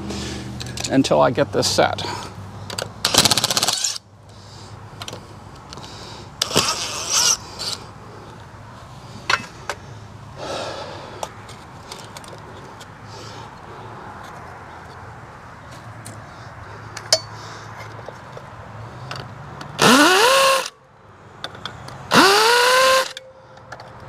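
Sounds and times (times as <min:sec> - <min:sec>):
cordless drill running: 0:19.8 - 0:20.7, 0:22.1 - 0:23.1.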